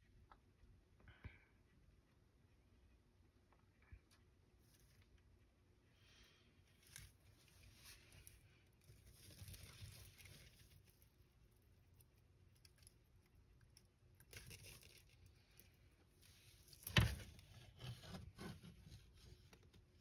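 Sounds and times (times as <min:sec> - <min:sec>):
soft rustles: 0:04.5 - 0:12.1.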